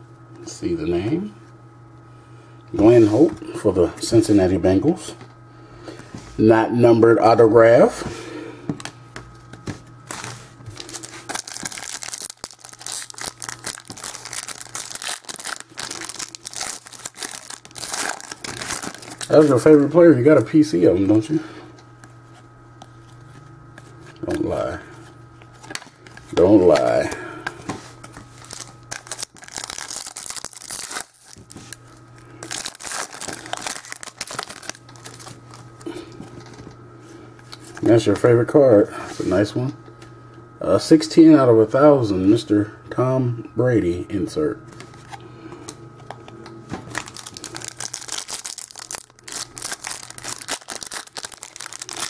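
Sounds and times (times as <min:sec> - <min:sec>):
wrapper tearing and crinkling: 0:10.1 - 0:19.6, 0:28.4 - 0:31.8, 0:32.4 - 0:35.6, 0:46.9 - 0:52.0.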